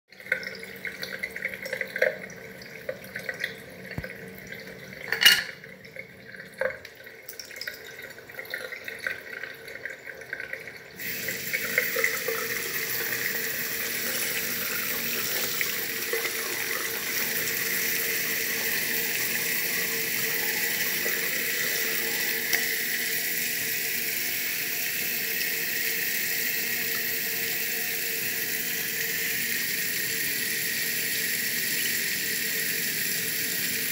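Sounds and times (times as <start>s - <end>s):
tap water flowing: 0.1s - 33.9s
water trickling into sink: 0.1s - 33.9s.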